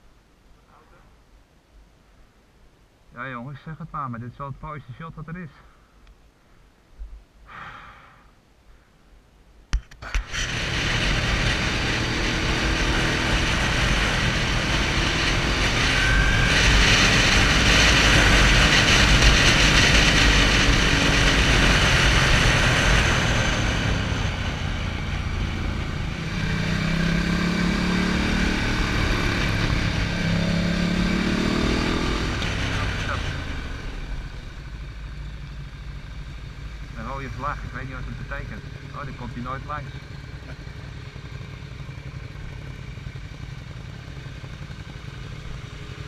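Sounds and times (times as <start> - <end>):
motorcycle engine accelerating: 10.0 - 46.0.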